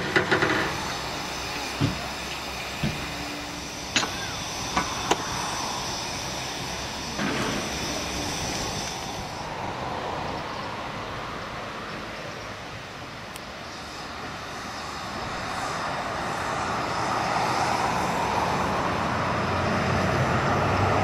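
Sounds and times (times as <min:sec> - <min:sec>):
steam locomotive hissing: 0:00.0 - 0:21.0
sharp metallic clanks: 0:03.9 - 0:05.2.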